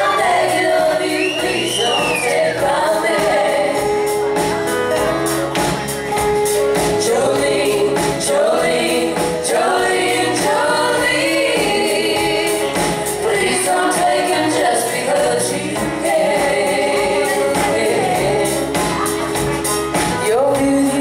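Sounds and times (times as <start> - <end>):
women singing in harmony: 0.0 - 4.1, 7.0 - 19.2
drum kit: 0.0 - 21.0.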